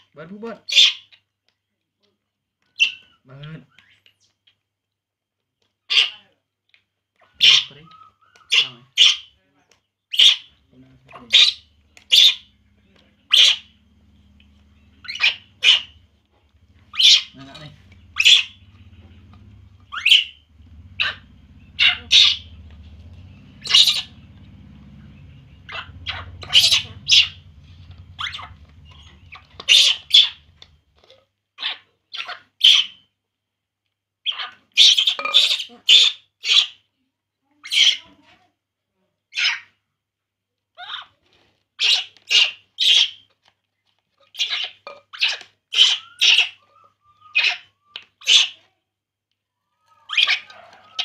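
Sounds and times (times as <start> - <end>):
baby monkey crying: 13.3 - 13.8, 14.4 - 16.0, 16.7 - 23.0, 23.6 - 24.5, 25.5 - 30.7, 44.4 - 48.6, 49.8 - 51.0.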